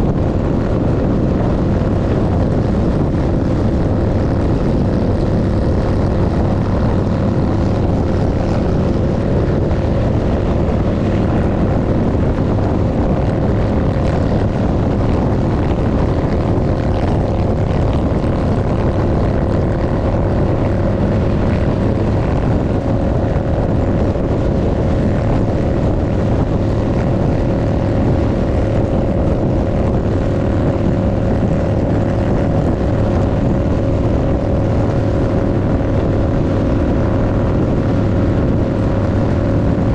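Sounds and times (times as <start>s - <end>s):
motorcycle engine cruising: 0.0s - 39.9s
wind rush on microphone: 0.0s - 39.9s.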